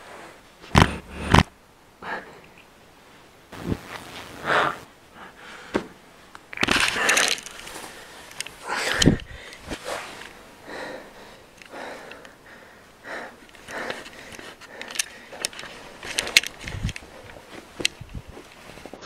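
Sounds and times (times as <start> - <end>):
camera handling rustles and knocks: 6.6 - 9.7, 13.6 - 18.7
close irregular breathing: 6.9 - 17.3.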